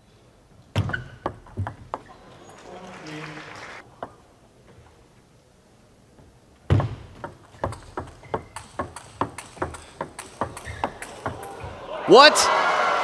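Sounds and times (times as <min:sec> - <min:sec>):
table tennis ball clicks: 0:07.2 - 0:11.6.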